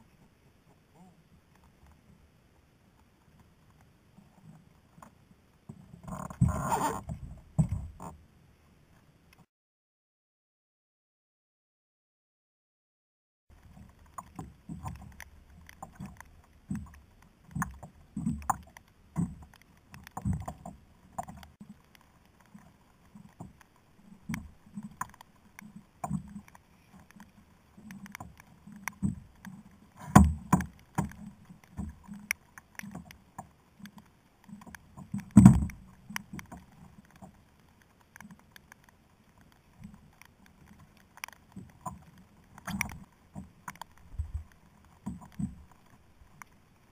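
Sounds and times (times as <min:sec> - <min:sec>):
water slapping kayak hull: 0:13.6 - 0:37.5.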